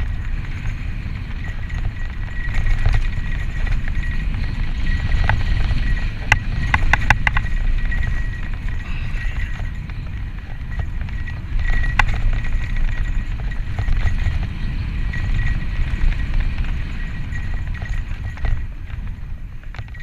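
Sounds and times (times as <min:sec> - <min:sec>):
high-pitched whine: 0:00.0 - 0:18.8
bike tyre noise and rattle: 0:00.0 - 0:20.0
wind rumble on microphone: 0:00.0 - 0:20.0
sharp clicks and knocks: 0:01.4 - 0:14.6.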